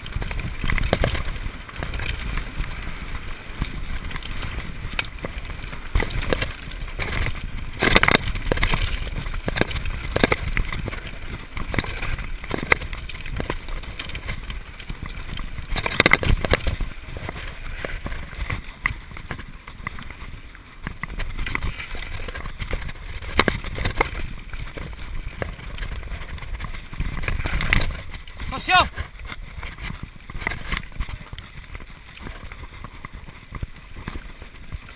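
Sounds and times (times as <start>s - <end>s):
bike rattling and knocking: 0.0s - 34.9s.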